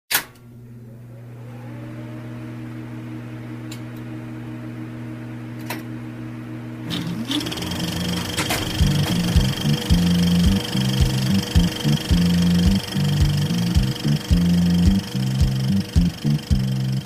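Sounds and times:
electric motor humming: 6.8 - 17.0
rising tone: 7.0 - 17.0.

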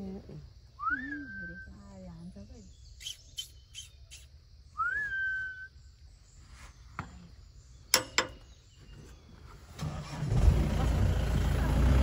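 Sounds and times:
whistled call: 0.8 - 1.8, 3.0 - 5.8.

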